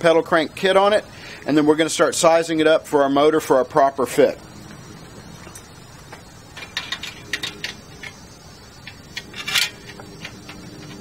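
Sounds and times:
metal hand tools clinking: 6.5 - 8.2, 8.8 - 11.0.

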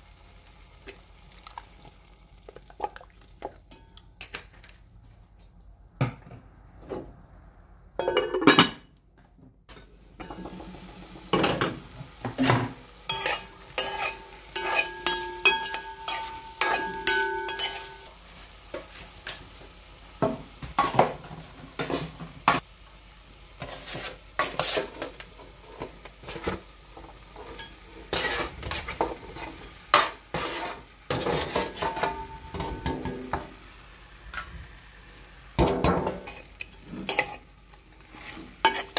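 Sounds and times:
vegetables sizzling in a pot: 0.0 - 4.2, 9.7 - 38.9
spoon knocking and scraping pot: 9.7 - 18.1, 25.8 - 33.5, 35.6 - 37.4, 38.2 - 38.9.

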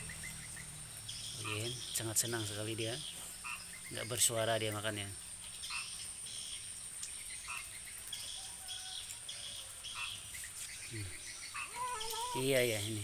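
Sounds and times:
bird chirps: 0.0 - 4.8, 5.4 - 13.0
insect drone: 0.0 - 7.7.

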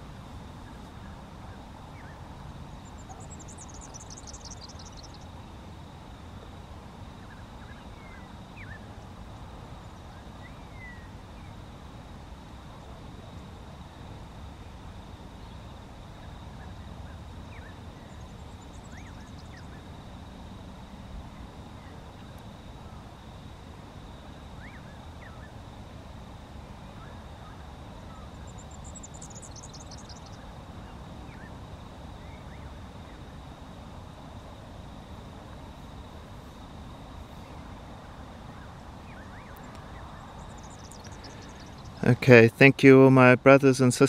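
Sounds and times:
small birds chirping: 0.6 - 5.5, 7.1 - 11.7, 14.6 - 20.0, 26.9 - 33.4, 37.3 - 42.3.

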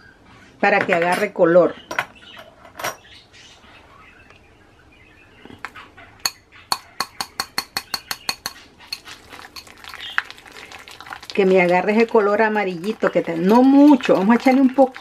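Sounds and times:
whisk clinking against glass bowl: 6.2 - 9.7.

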